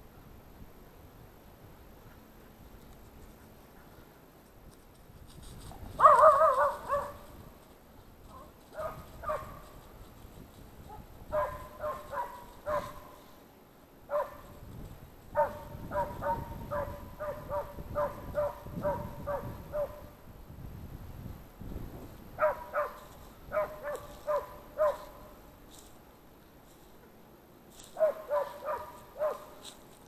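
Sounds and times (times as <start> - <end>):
hound baying: 5.9 - 7.4, 8.3 - 9.9, 10.9 - 13.3, 14.1 - 14.5, 15.4 - 20.1, 22.4 - 25.3, 27.9 - 29.8
dog barking: 6.0 - 7.3, 8.3 - 9.8, 10.9 - 13.2, 14.1 - 14.5, 15.4 - 20.1, 22.4 - 25.3, 28.0 - 29.6.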